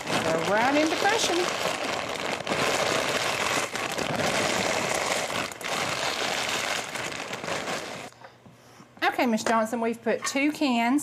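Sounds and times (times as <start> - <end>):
crisps crunching: 0.0 - 8.2
plastic bag crinkling: 0.0 - 8.2.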